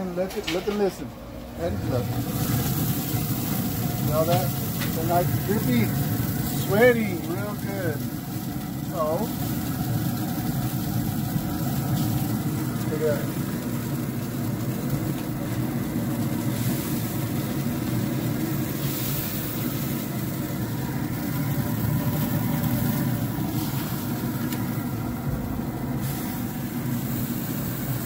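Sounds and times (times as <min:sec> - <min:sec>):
grill low mechanical hum: 0:00.0 - 0:28.0
burger patties sizzling: 0:00.4 - 0:28.0.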